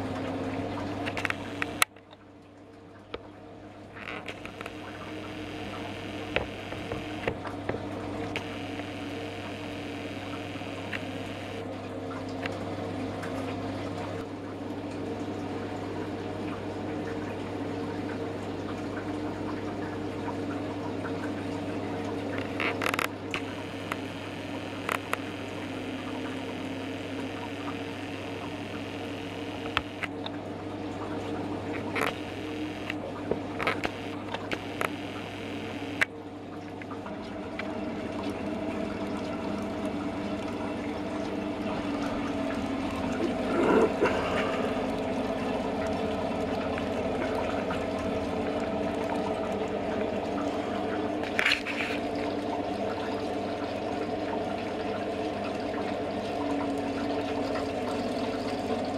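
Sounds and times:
steady low hum: 0.0s - 18.2s, 21.1s - 58.9s
small sharp clicks: 1.0s - 2.1s, 22.3s - 30.2s, 33.6s - 36.1s.

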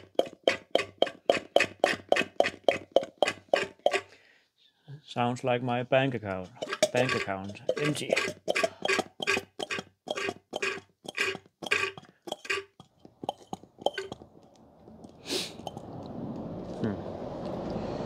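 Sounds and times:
hand siphon pump strokes: 0.0s - 4.2s, 6.3s - 14.2s.

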